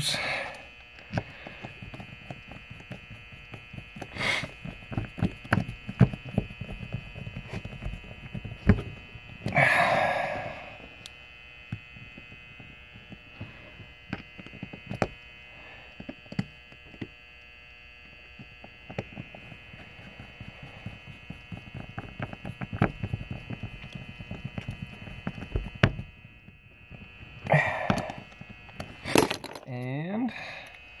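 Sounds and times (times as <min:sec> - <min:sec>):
person breathing: 0:00.0 - 0:01.8, 0:04.1 - 0:04.6, 0:09.5 - 0:11.0, 0:27.5 - 0:28.3, 0:30.3 - 0:30.8
faint steady hum: 0:00.0 - 0:31.0.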